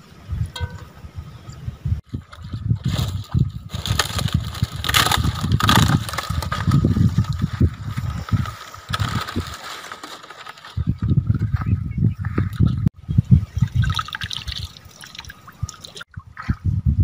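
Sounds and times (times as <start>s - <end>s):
wind buffeting microphone: 0.0s - 9.7s, 10.6s - 17.0s
palm frond dragged over grass: 2.8s - 10.9s.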